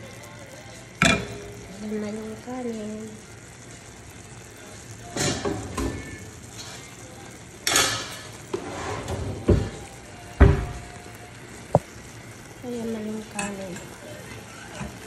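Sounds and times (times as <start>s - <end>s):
cookware clanking and scraping: 5.1s - 6.9s, 7.6s - 9.8s, 13.3s - 15.0s.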